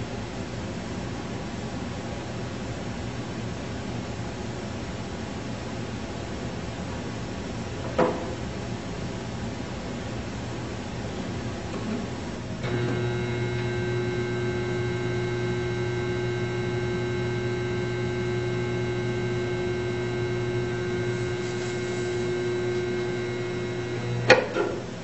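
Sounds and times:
solenoid humming: 12.6s - 24.8s.

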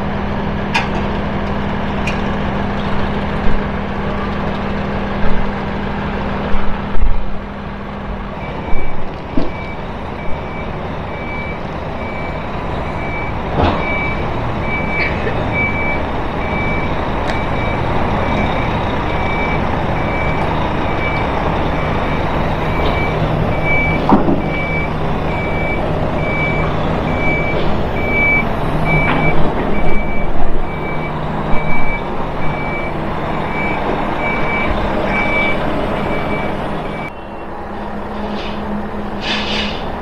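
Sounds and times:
engine running: 0.0s - 40.0s
reversing alarm beeping: 8.4s - 38.0s.

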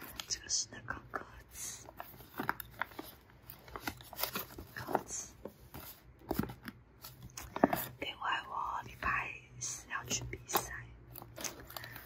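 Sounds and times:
paper rustling: 1.8s - 8.0s, 11.1s - 12.0s.

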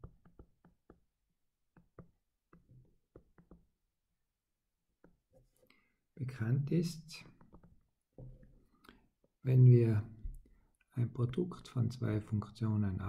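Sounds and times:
stylus tapping a touchscreen: 0.0s - 3.8s, 5.0s - 5.6s, 7.2s - 8.6s.

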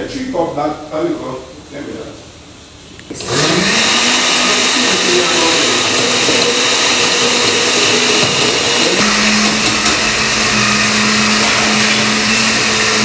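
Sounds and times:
blender running: 3.1s - 13.0s.

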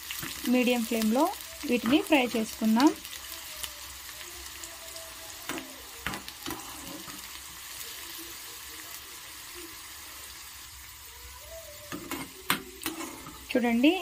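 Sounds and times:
onions sizzling in hot oil: 0.0s - 14.0s.

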